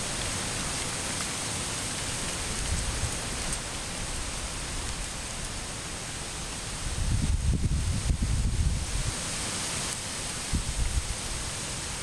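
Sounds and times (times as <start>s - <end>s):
distant waterfall rushing: 0.0s - 7.0s, 8.8s - 12.0s
wind on microphone: 6.8s - 9.3s, 10.4s - 11.4s.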